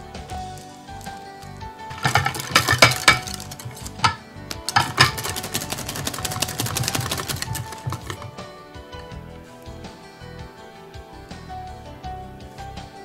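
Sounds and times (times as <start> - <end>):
soft background music: 0.0 - 13.0
whisk scraping glass bowl: 2.0 - 8.3.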